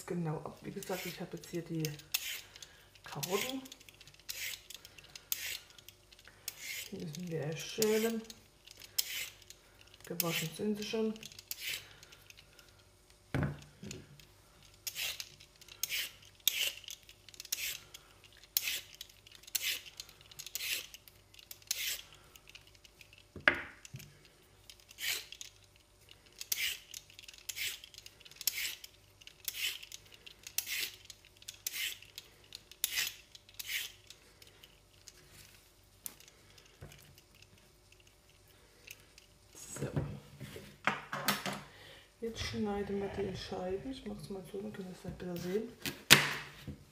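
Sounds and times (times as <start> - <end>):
peeler scraping carrot: 0.6 - 5.8, 6.5 - 8.3, 8.9 - 12.0, 14.8 - 21.0, 21.6 - 22.2, 24.9 - 25.5, 26.4 - 32.2, 32.8 - 34.1.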